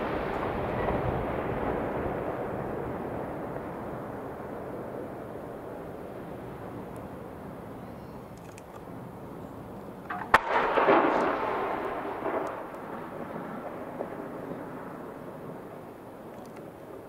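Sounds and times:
rolling crackling rush: 0.0s - 17.0s
firework bang: 10.1s - 14.8s.

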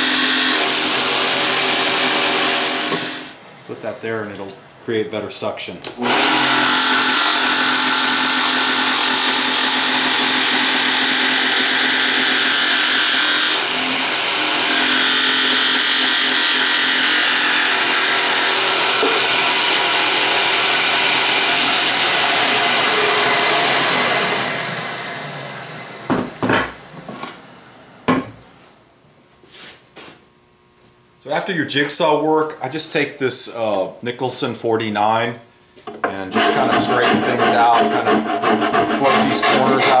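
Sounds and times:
dust extractor running: 0.0s - 3.4s, 6.0s - 26.9s
jigsaw cutting wood: 0.0s - 3.4s, 6.0s - 26.1s, 36.3s - 40.0s.

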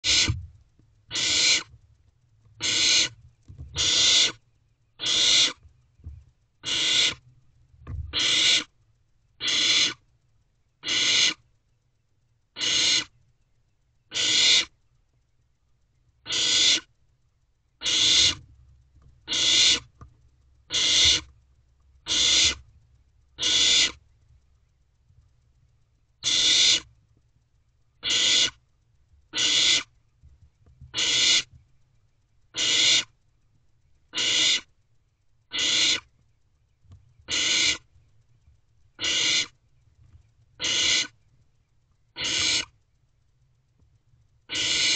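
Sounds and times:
owl chicks hissing: 0.0s - 0.4s, 1.1s - 1.7s, 2.6s - 3.2s, 3.8s - 4.4s, 5.0s - 5.6s, 6.6s - 7.2s, 8.1s - 8.7s, 9.4s - 10.0s, 10.8s - 11.4s, 12.6s - 13.1s, 14.1s - 14.7s, 16.3s - 16.9s, 17.8s - 18.4s, 19.3s - 19.9s, 20.7s - 21.3s, 22.0s - 22.6s, 23.4s - 24.0s, 26.2s - 26.9s, 28.0s - 28.6s, 29.3s - 29.9s, 30.9s - 31.5s, 32.5s - 33.1s, 34.1s - 34.7s, 35.5s - 36.1s, 37.3s - 37.8s, 39.0s - 39.6s, 40.6s - 41.2s, 42.2s - 42.8s, 44.5s - 44.9s.

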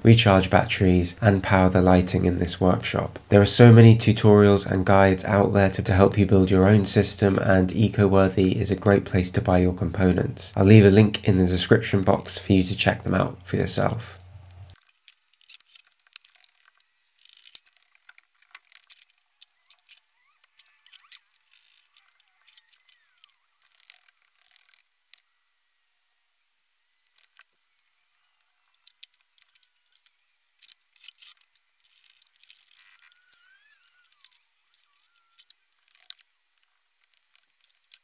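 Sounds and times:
faint clicks and rattles: 13.8s - 25.2s, 27.0s - 38.0s.

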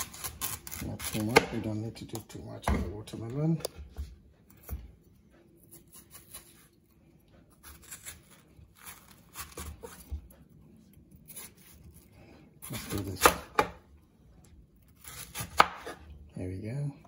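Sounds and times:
knife slicing watermelon: 0.0s - 3.0s, 5.6s - 6.8s, 7.5s - 10.3s, 11.2s - 13.8s, 14.8s - 16.1s.

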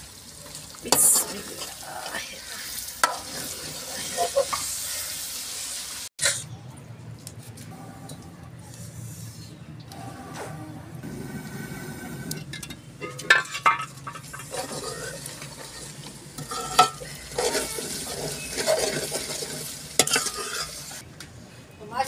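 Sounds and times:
food sizzling in a metal pot: 0.0s - 6.4s, 13.1s - 21.0s
metal ladle scraping pot: 10.0s - 21.0s.

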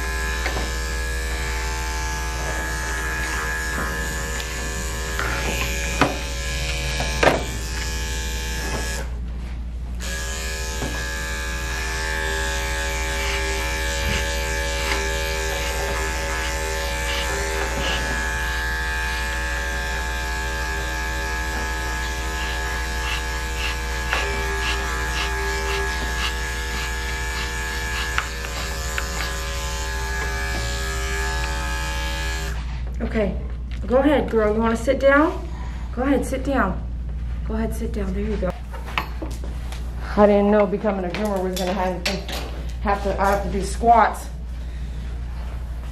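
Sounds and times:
electric clippers buzzing: 0.0s - 9.2s, 9.9s - 32.7s.

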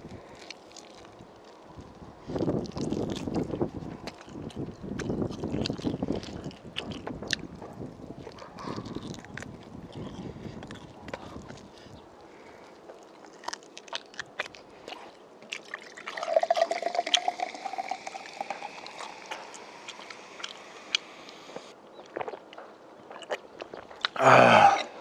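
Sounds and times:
cola pouring and fizzing: 15.6s - 21.6s.

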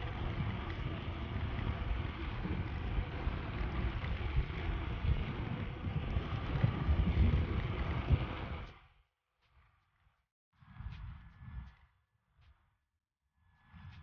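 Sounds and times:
wind buffeting microphone: 0.0s - 8.8s.

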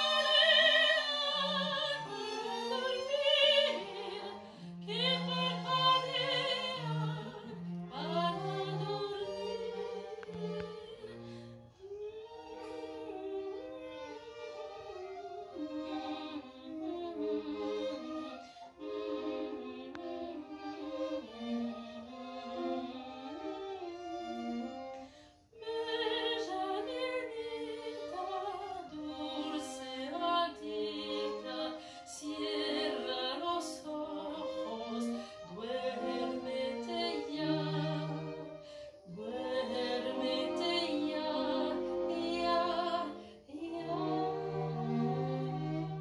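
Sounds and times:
woman singing with vibrato: 0.0s - 9.9s, 25.6s - 38.3s, 39.1s - 45.7s
string ensemble: 0.0s - 46.0s.

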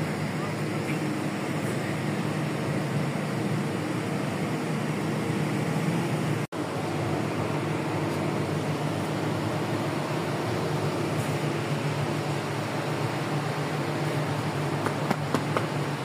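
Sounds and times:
machinery drone with rushing hiss: 0.0s - 16.0s.

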